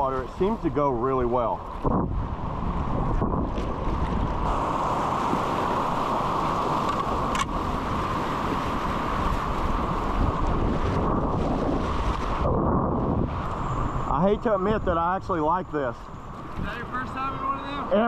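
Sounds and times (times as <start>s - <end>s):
wind buffeting microphone: 0.0s - 18.0s
rushing whitewater: 3.9s - 12.6s.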